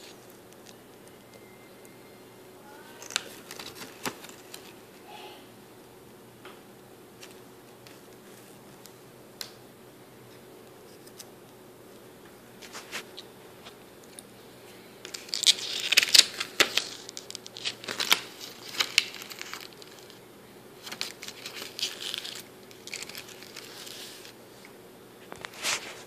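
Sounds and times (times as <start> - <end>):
paper pages rustling: 3.0 - 4.8, 15.0 - 20.2, 20.8 - 24.4, 25.2 - 26.0.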